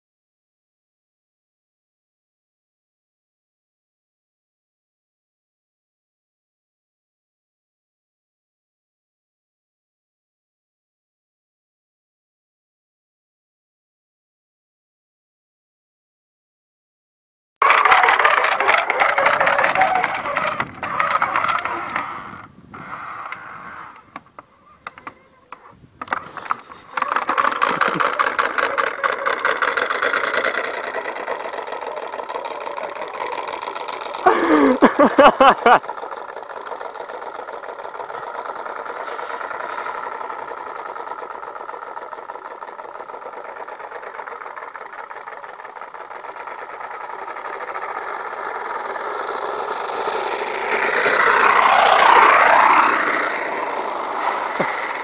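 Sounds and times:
small motorbike engine buzzing: 17.6 - 55.0.

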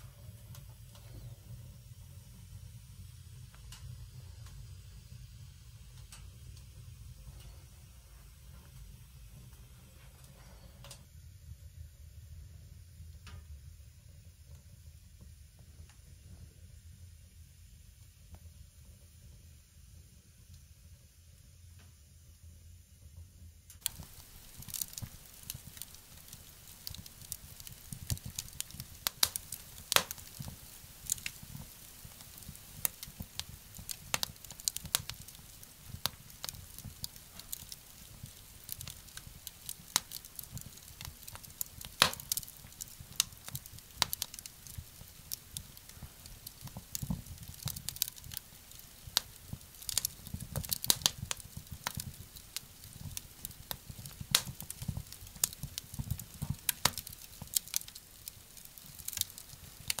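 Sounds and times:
wood fire crackling in stove: 0.0 - 60.0.

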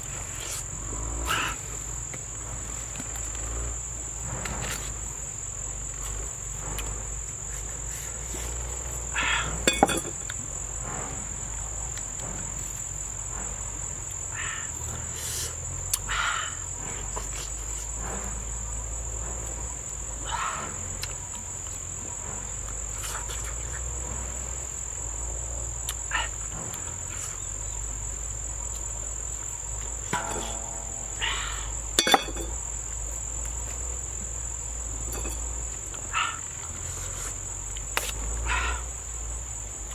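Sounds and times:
insects droning: 0.0 - 39.9
sharp knocks: 30.0 - 32.6.

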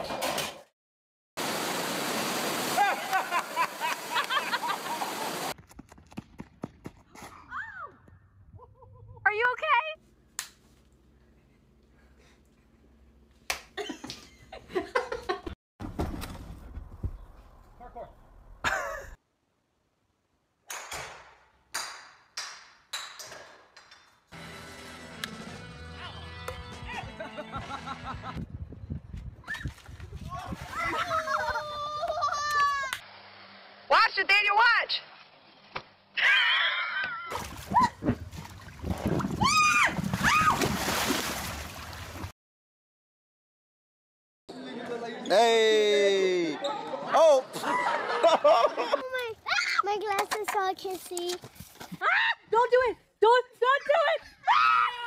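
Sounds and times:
water splashing in a pool: 37.1 - 42.3.

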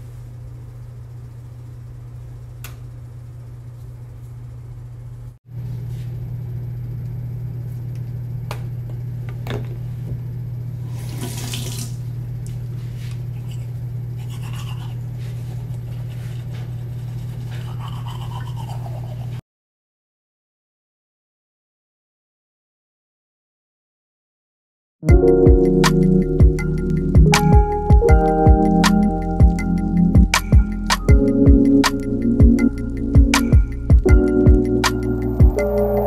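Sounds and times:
toothbrush scrubbing teeth: 13.4 - 15.0, 16.8 - 19.4
low hum: 25.2 - 36.0.

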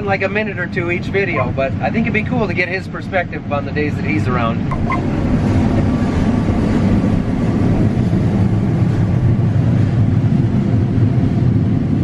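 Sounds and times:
combine harvester rumbling: 0.0 - 12.0
rushing mechanical noise: 4.6 - 12.0.

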